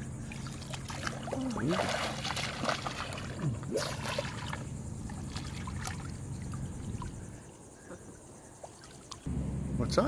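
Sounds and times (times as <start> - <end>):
steady low hum: 0.0 - 10.0
seawater splashing: 0.3 - 7.3.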